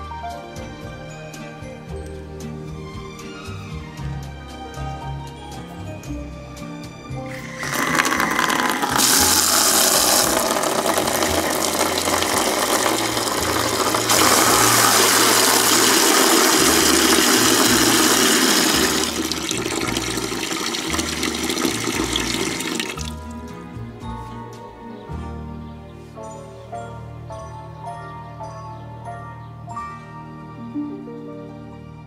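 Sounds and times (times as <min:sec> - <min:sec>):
water running from garden tap: 0:07.3 - 0:23.4.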